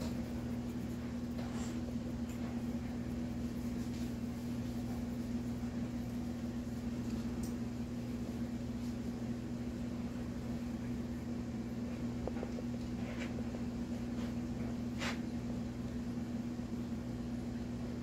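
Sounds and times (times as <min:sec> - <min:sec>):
low machine hum: 0:00.0 - 0:18.0
faint light ticks: 0:07.1 - 0:07.6.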